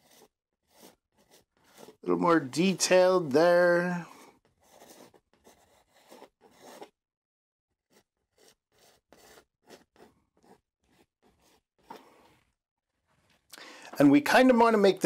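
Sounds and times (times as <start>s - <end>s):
palette knife scraping on canvas: 0.0s - 3.0s, 4.1s - 7.0s, 7.8s - 12.5s.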